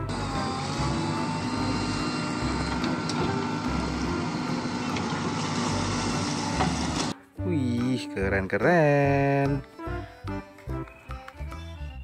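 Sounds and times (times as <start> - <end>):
diesel engine running: 0.0 - 7.2.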